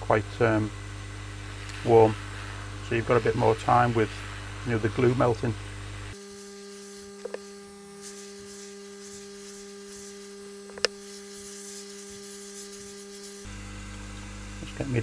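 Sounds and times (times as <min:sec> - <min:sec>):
hot air blower hum: 0:00.0 - 0:15.0.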